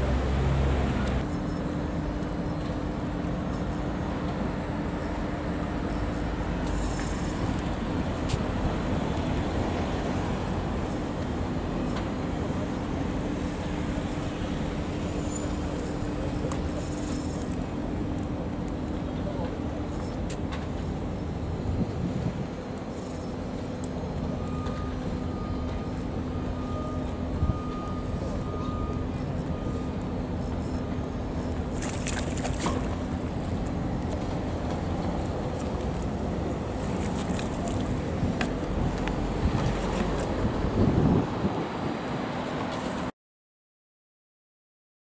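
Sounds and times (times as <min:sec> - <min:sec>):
engine idling hum: 0:00.0 - 0:41.0
fish splashing at surface: 0:31.8 - 0:33.0.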